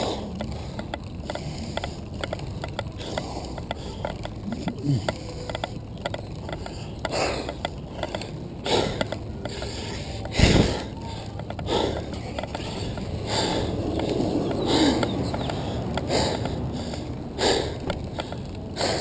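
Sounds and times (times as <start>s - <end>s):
chain drive and tyres running: 0.0s - 19.0s
person breathing hard: 6.6s - 19.0s.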